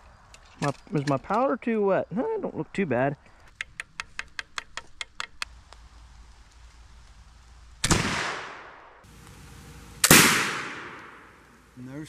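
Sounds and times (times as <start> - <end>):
faint ticks: 3.2 - 7.2
rifle shot crack: 7.8 - 11.8.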